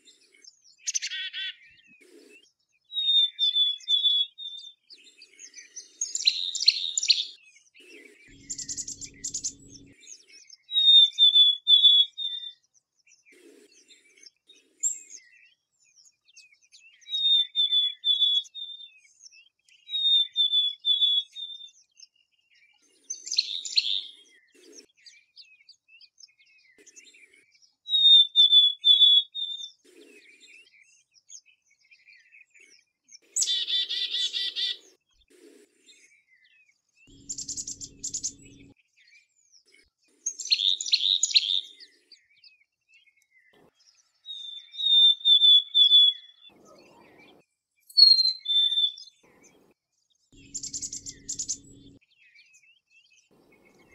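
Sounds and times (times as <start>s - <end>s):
chickadee calling: 8.3s - 10.0s, 33.4s - 34.8s, 37.1s - 38.7s, 48.0s - 49.7s, 50.4s - 52.0s
harsh raspy bird notes: 8.3s - 10.0s, 37.1s - 38.7s, 50.4s - 52.0s.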